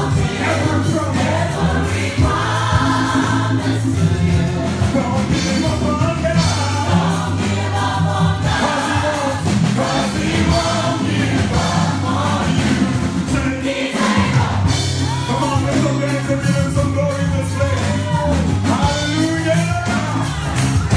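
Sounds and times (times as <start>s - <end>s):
choir singing: 0.0s - 15.8s
instrumental accompaniment: 0.0s - 20.9s
strong bass line: 0.0s - 20.9s.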